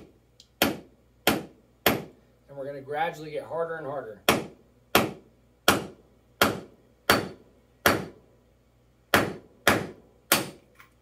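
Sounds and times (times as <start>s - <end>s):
hammer striking chisel: 0.0s - 2.2s, 4.2s - 8.2s, 9.1s - 10.6s.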